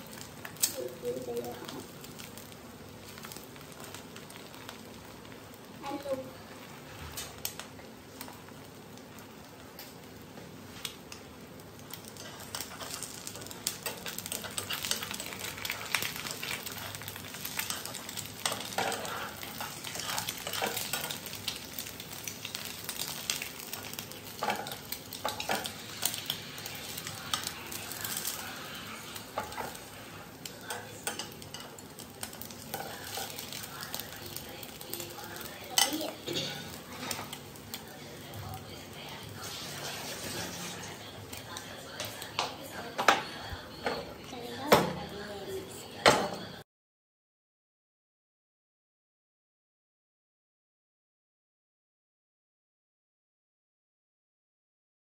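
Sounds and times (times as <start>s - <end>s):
egg sizzling in a pan: 0.0s - 43.7s
chopsticks scraping a pan: 11.9s - 37.6s, 39.4s - 41.0s.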